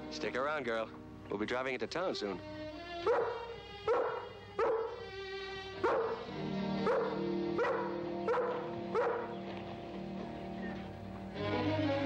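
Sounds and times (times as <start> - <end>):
background music: 0.0 - 12.0
dog barking: 3.0 - 5.0, 5.8 - 6.2, 6.8 - 9.4.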